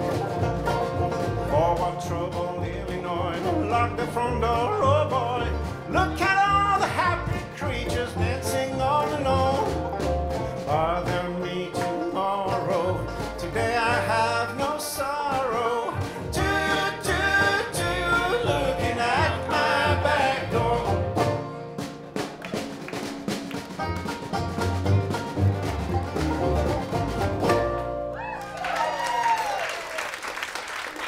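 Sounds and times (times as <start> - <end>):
acoustic country-rock band: 0.0 - 28.4
man singing: 1.4 - 9.8, 10.6 - 21.2.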